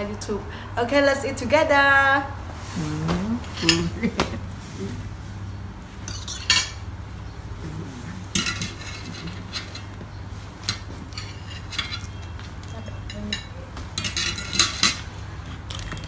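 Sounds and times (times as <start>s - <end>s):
steady low hum: 0.0s - 16.0s
cutlery clinking on plates: 6.0s - 6.8s, 8.3s - 9.9s, 10.6s - 16.0s.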